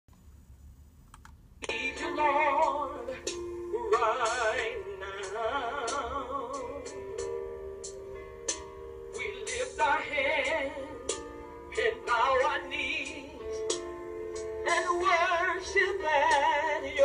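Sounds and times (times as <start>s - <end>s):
woman singing gospel: 1.6s - 6.8s, 14.7s - 17.0s
electric keyboard chords: 1.6s - 17.0s.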